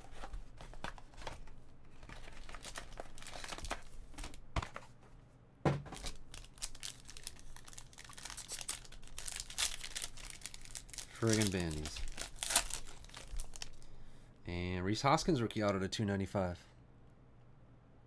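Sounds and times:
foil pack crinkling and tearing: 2.0s - 3.9s, 6.0s - 13.8s.

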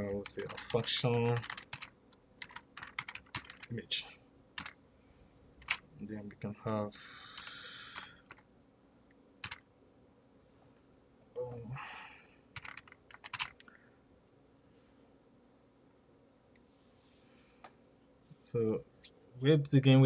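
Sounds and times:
computer keyboard typing: 0.0s - 3.7s, 4.6s - 4.8s, 5.6s - 5.8s, 7.3s - 8.4s, 9.4s - 9.6s, 12.6s - 13.7s.

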